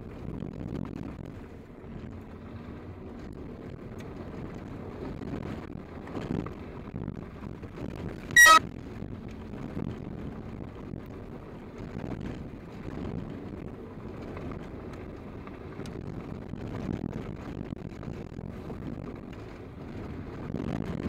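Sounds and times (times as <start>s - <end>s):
engine and tyre rumble: 0.0s - 21.0s
high-pitched chirp: 8.4s - 8.6s.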